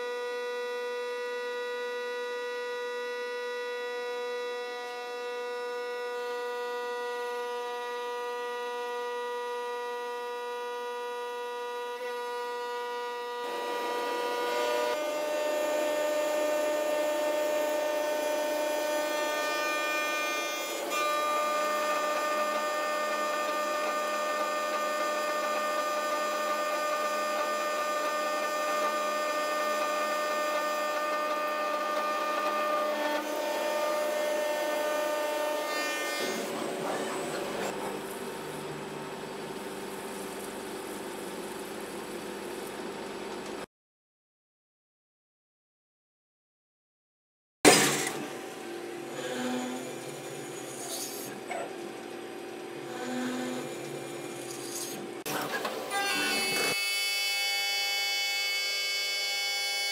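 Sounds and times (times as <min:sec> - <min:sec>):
lathe machine whine: 0:00.0 - 0:42.6
cutting and splashing coolant: 0:13.4 - 0:38.6.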